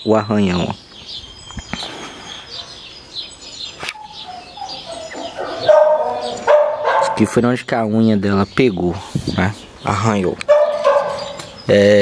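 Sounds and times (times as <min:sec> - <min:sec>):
small birds chirping: 0:00.0 - 0:12.0
dog whining: 0:04.0 - 0:07.3, 0:10.5 - 0:11.4.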